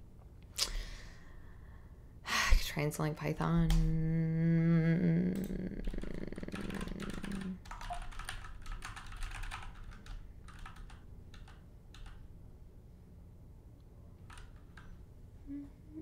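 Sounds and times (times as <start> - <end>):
typing on computer keyboard: 5.4 - 12.3, 14.2 - 15.0.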